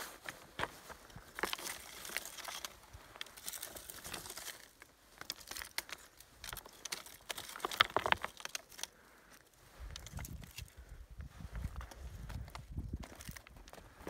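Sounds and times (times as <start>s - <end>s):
stones and twigs crunching: 0.0s - 14.0s.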